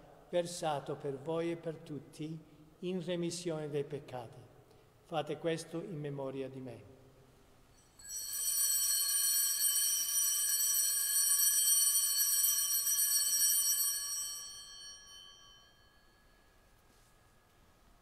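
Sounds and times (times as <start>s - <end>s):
altar bell ringing: 7.7s - 16.8s.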